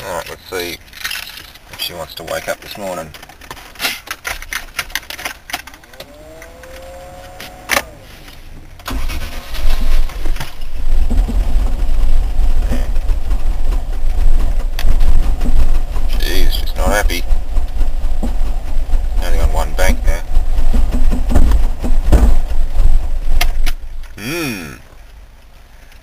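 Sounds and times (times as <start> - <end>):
starter whine: 5.4 - 25.1
engine running unevenly: 5.8 - 25.2.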